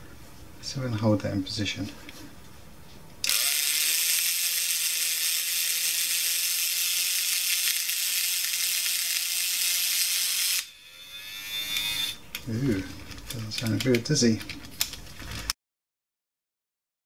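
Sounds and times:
toy motor whirring: 3.2 - 13.9.

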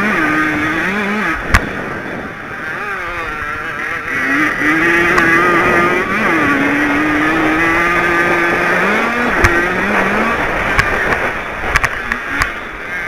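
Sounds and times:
two-stroke motorcycle engine revving: 0.0 - 13.0.

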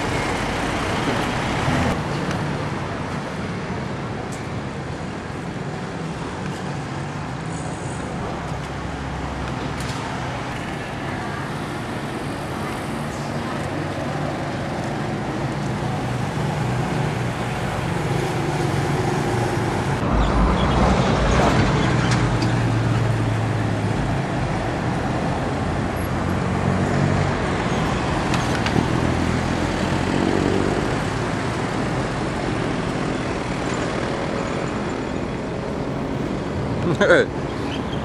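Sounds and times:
vehicle engines passing: 4.9 - 38.0
low rumble: 20.0 - 22.0.

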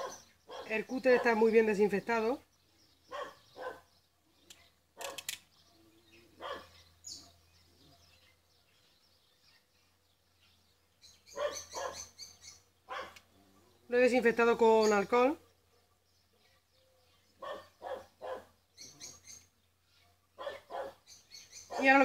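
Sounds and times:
dog barking: 0.0 - 1.4, 3.1 - 3.9, 6.4 - 7.5, 11.3 - 12.2, 12.9 - 13.2, 17.4 - 18.6, 20.4 - 21.1, 21.7 - 22.0.

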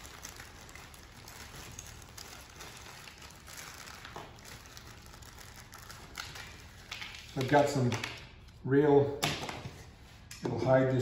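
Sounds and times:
plastic bag rustling: 0.0 - 7.9.

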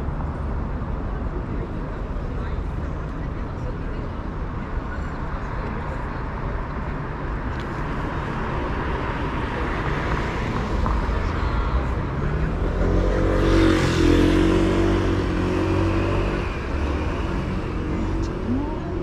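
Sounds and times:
street traffic rumbling: 0.0 - 19.0.

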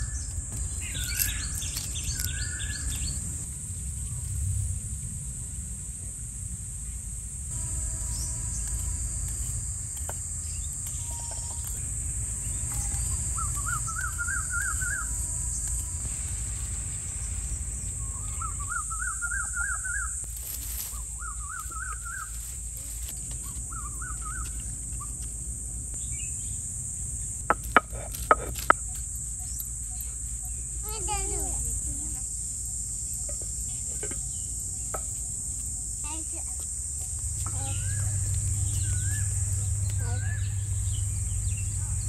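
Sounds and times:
high insect buzz: 0.0 - 5.0, 6.4 - 42.0
low rumble: 0.0 - 23.0, 36.7 - 42.0
bird warbling: 12.5 - 15.6, 18.0 - 20.2.

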